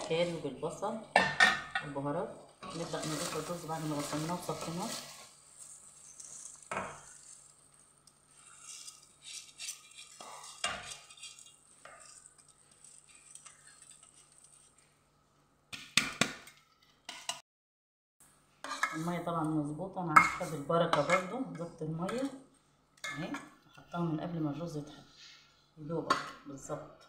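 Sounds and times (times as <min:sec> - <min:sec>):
rice pouring into pot: 0:02.8 - 0:14.9.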